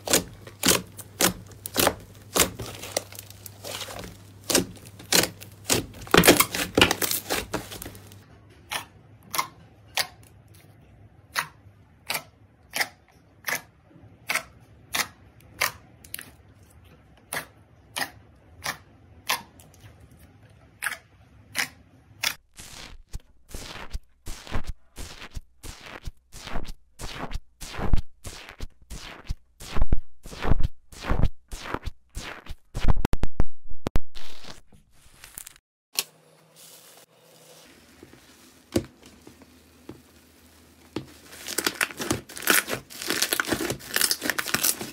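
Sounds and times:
slime air pockets popping: 0.0s - 8.2s, 40.9s - 44.9s.

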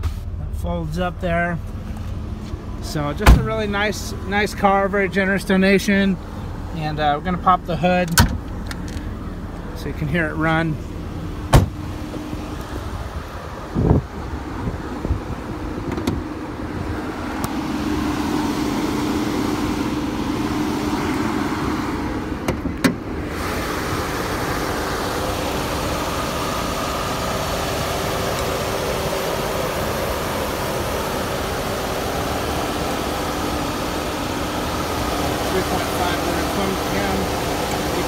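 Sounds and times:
car engine idling: 0.0s - 38.0s
hood opening click: 8.0s - 9.7s, 15.8s - 16.2s, 22.4s - 23.0s.

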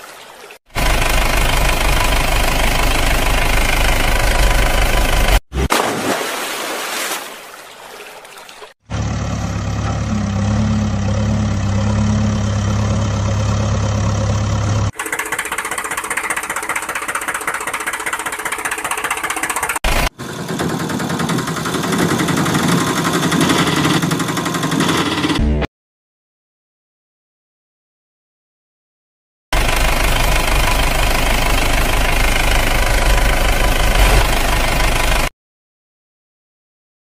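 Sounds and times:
engine running: 0.7s - 5.7s, 8.9s - 25.7s, 29.6s - 35.3s.

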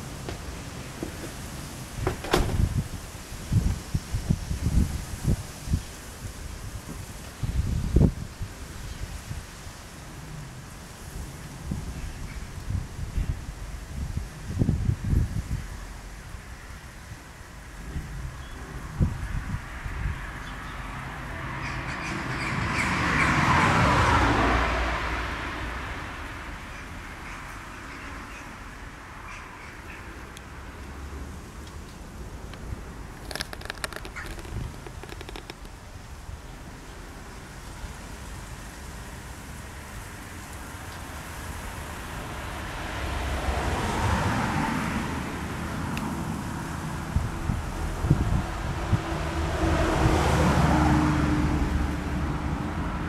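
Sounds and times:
outdoor rushing noise: 0.0s - 7.2s, 41.2s - 53.0s
car passing: 19.4s - 27.8s, 38.2s - 53.0s.

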